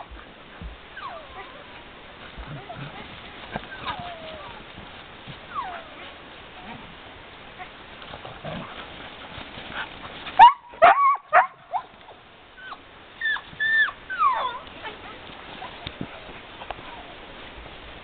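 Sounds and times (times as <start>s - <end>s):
dogs yelping: 3.5s - 4.6s, 12.6s - 14.7s.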